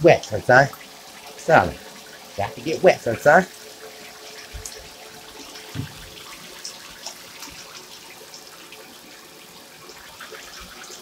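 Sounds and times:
tap water running into bathtub: 0:00.0 - 0:11.0
water splashing: 0:00.0 - 0:11.0
thump: 0:05.7 - 0:06.0.

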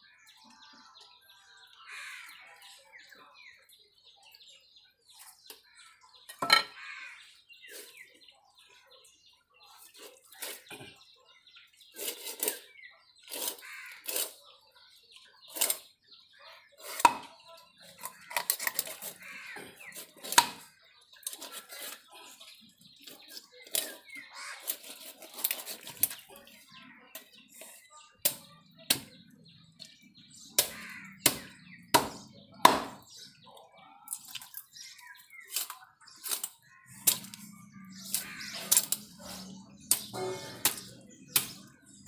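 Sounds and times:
faint birds chirping: 0:00.0 - 0:42.0
knife cracking and scraping fish: 0:18.0 - 0:22.0, 0:23.0 - 0:26.3, 0:34.1 - 0:41.6.

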